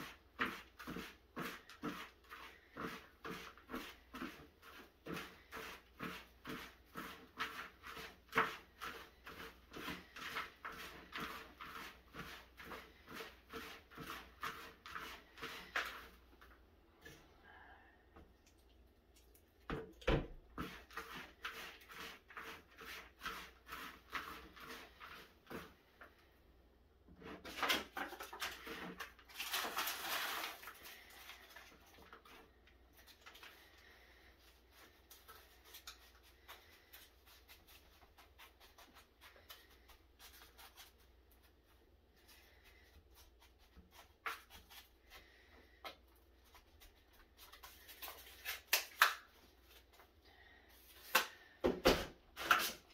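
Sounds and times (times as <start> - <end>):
hands rustling potting soil: 27.2 - 50.2.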